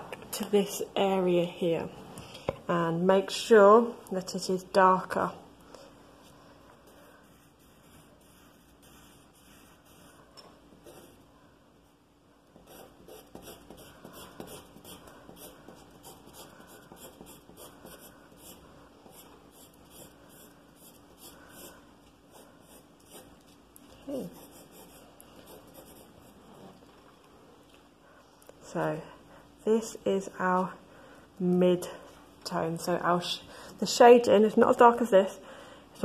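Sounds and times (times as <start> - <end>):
pencil scratching on paper: 6.9 - 11.2, 12.6 - 23.4, 24.2 - 26.7.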